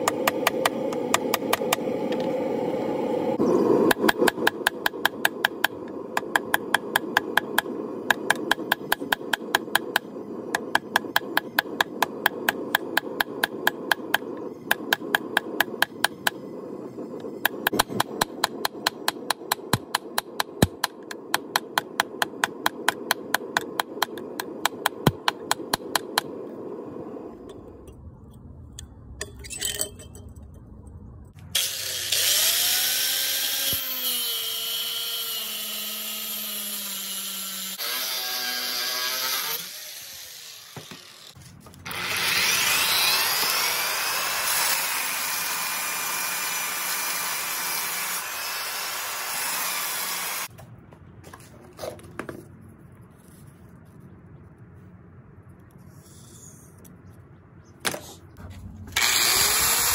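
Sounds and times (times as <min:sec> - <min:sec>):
forge burner rushing: 0:00.0 - 0:27.9.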